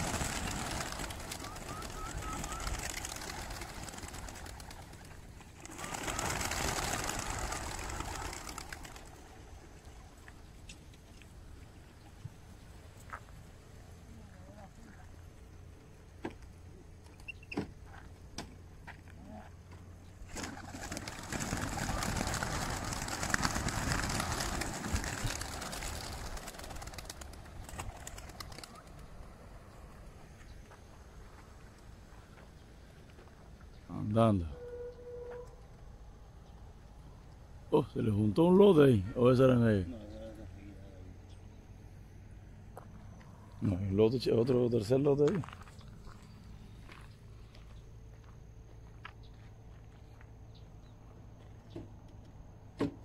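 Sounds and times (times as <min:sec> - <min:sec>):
pigeons flapping wings: 0:00.0 - 0:10.1, 0:20.2 - 0:29.4.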